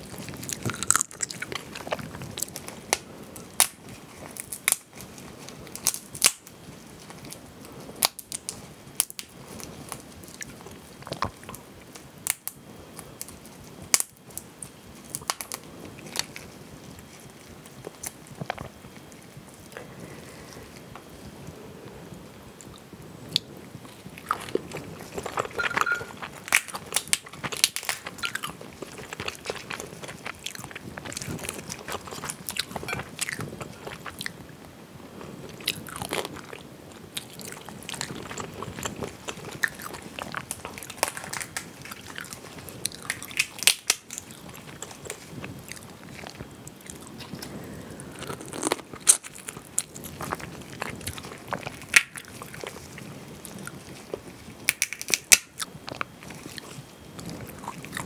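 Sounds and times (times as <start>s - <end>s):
person chewing: 0.0s - 4.8s, 22.7s - 34.4s, 35.5s - 58.0s
shells cracking apart: 25.2s - 30.4s, 54.7s - 55.5s.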